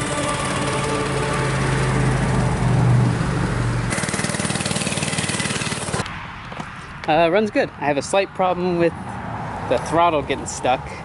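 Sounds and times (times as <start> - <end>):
mini bike engine running: 0.0 - 6.1.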